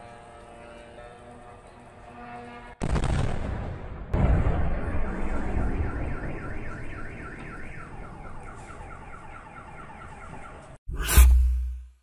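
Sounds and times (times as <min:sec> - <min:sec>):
car alarm wailing: 0:05.1 - 0:10.8.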